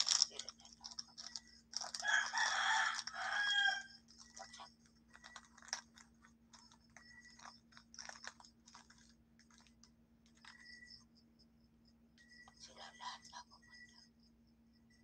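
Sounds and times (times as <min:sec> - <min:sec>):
steady low hum: 0:00.0 - 0:15.0
rooster crowing: 0:02.0 - 0:04.0.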